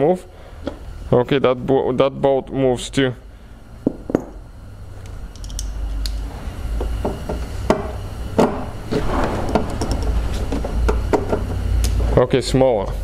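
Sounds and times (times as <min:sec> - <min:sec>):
low rumble: 0:06.2 - 0:12.1.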